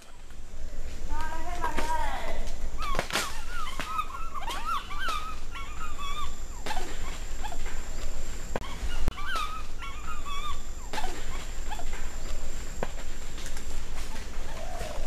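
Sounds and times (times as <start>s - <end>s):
animal chirping squeals: 2.8s - 7.6s, 8.6s - 12.3s.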